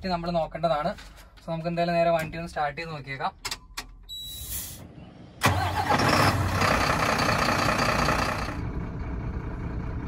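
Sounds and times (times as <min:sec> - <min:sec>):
diesel truck engine starting: 0:04.7 - 0:10.0.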